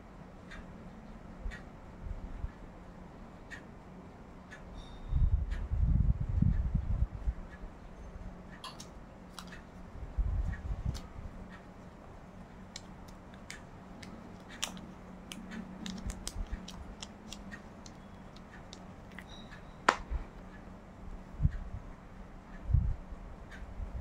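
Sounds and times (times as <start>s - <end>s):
plastic case clicks and taps: 19.9s - 20.1s.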